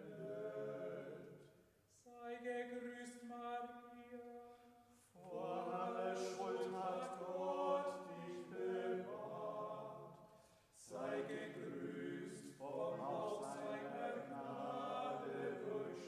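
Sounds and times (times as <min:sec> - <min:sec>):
voices singing a hymn: 0:00.0 - 0:01.6, 0:05.2 - 0:16.0.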